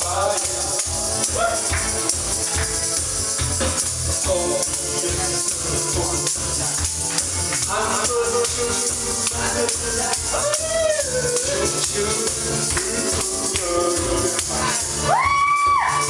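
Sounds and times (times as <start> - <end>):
person singing into a microphone: 0.0 - 1.7, 7.6 - 16.0
loud party music: 0.0 - 16.0.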